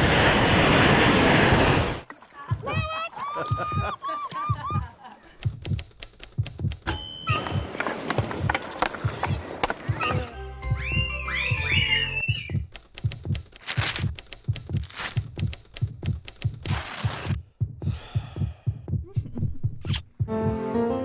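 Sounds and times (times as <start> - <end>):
fast low thumping: 2.5 - 6.8
sharp clicks: 5.4 - 7.0, 12.3 - 17.4
rising chirps: 10.6 - 12.6.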